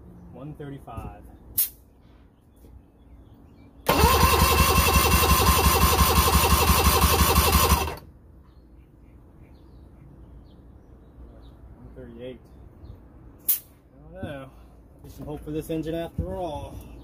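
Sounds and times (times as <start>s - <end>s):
electric starter cranking engine: 3.8s - 8.0s.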